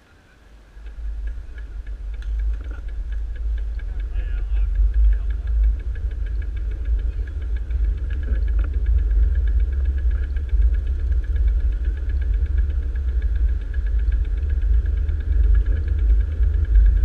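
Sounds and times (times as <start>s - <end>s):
wind and road noise: 0.0s - 17.0s
bicycle freewheel clicking: 0.6s - 17.0s.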